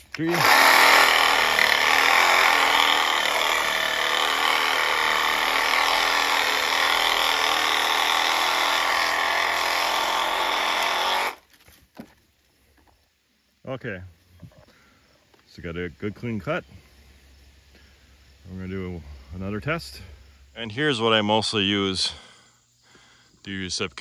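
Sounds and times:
reciprocating saw cutting branch: 0:00.0 - 0:11.4.

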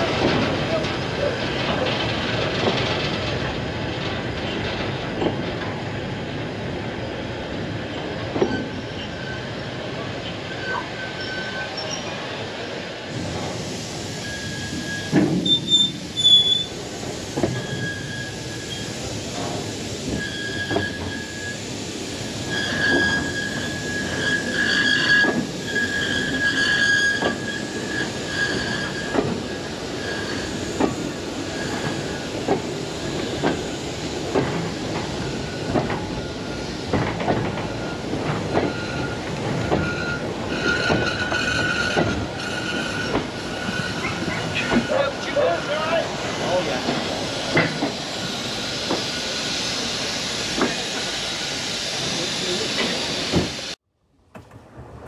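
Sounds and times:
train wheels clacking over rail joints: 0:00.0 - 0:06.0, 0:22.7 - 0:45.5, 0:46.6 - 0:48.1
wheel flanges squealing: 0:14.2 - 0:16.7, 0:22.5 - 0:30.9.

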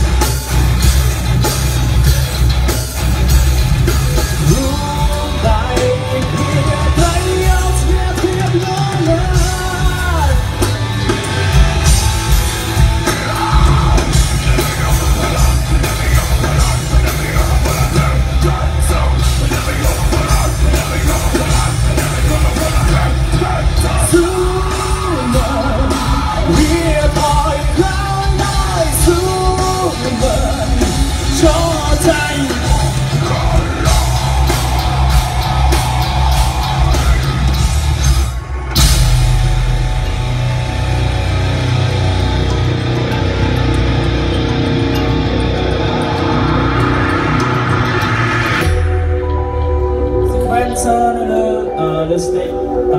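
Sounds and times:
bass: 0:00.0 - 0:52.9
drums: 0:00.0 - 0:52.9
electric guitars: 0:00.0 - 0:52.9
person singing: 0:04.4 - 0:10.7, 0:13.0 - 0:37.3
shouted vocals: 0:31.5 - 0:37.6.

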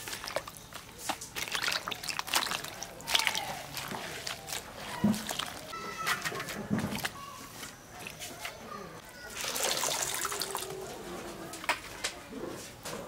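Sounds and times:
water sloshing and dripping: 0:00.0 - 0:07.2, 0:09.3 - 0:10.9.

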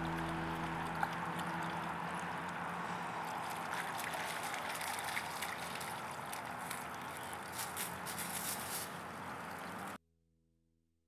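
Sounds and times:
creek water trickling: 0:00.0 - 0:10.0
dog splashing through water: 0:00.1 - 0:09.9.

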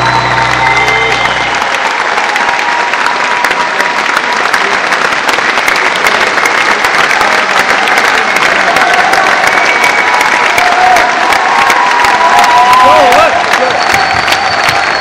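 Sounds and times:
band low notes: 0:00.0 - 0:01.7
audience applauding: 0:00.0 - 0:15.0.

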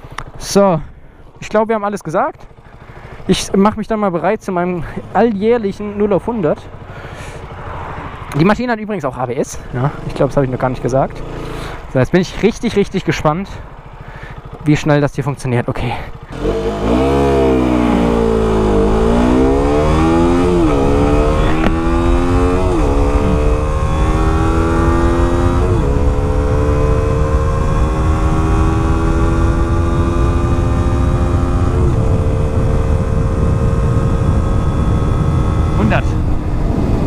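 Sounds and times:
motorcycle engine accelerating: 0:00.0 - 0:37.0.

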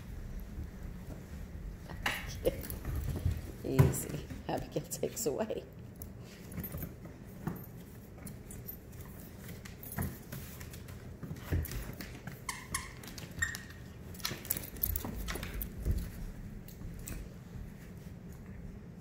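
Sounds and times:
dog claws clicking on floor: 0:05.8 - 0:17.3.

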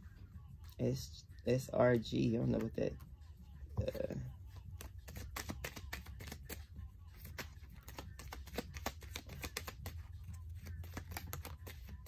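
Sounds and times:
cards clicking and tapping on table: 0:04.8 - 0:06.6, 0:07.2 - 0:12.0.

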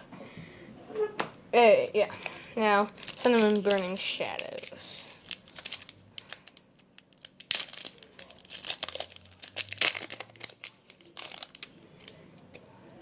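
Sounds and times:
foil wrapper tearing and crinkling: 0:02.2 - 0:12.2.

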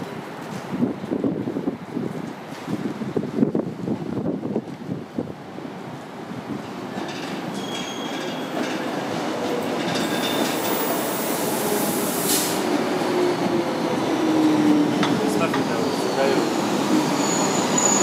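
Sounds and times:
low whine of slowing train: 0:04.8 - 0:18.0
train running noise: 0:05.9 - 0:18.0
wheel squeals: 0:07.0 - 0:08.8, 0:15.6 - 0:18.0
burst of hiss: 0:11.2 - 0:12.7.

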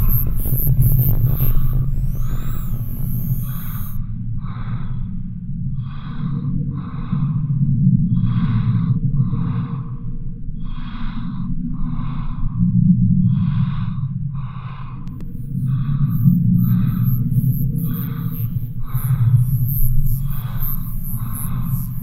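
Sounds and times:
faint steady tone: 0:00.0 - 0:04.0, 0:15.1 - 0:22.0
heavy rhythmic breathing: 0:00.0 - 0:05.2, 0:13.2 - 0:22.0
steady low drone: 0:00.0 - 0:08.4, 0:15.0 - 0:22.0.

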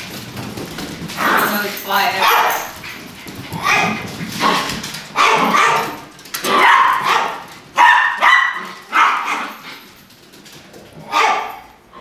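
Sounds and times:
small dogs barking: 0:02.2 - 0:02.8, 0:03.6 - 0:09.7, 0:11.0 - 0:11.7.

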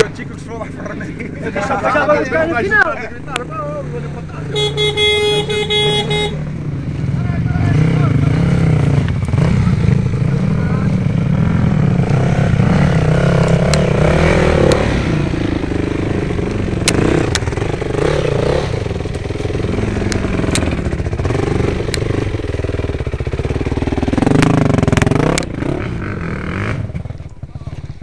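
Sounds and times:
dirt bike engine revving: 0:00.0 - 0:28.0
sharp clicks: 0:13.4 - 0:13.9, 0:16.4 - 0:17.5, 0:20.1 - 0:20.8, 0:24.4 - 0:25.5.

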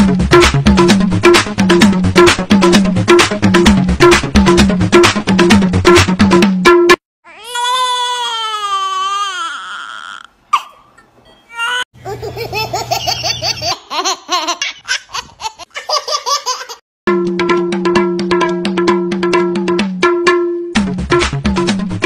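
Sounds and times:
drum-led music: 0:00.0 - 0:07.0, 0:17.1 - 0:22.0
baby crying: 0:07.2 - 0:10.9, 0:11.5 - 0:12.8
baby laughing: 0:10.5 - 0:10.9, 0:11.5 - 0:16.8.

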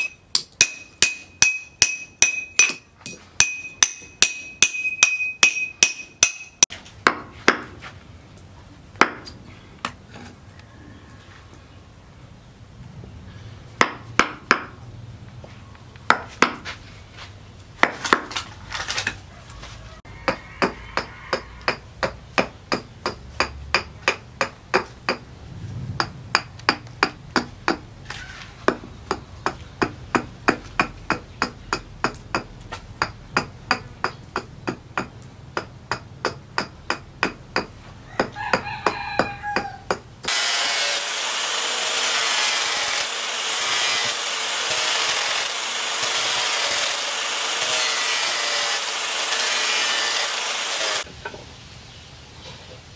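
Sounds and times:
angle grinder whining: 0:40.3 - 0:51.1.

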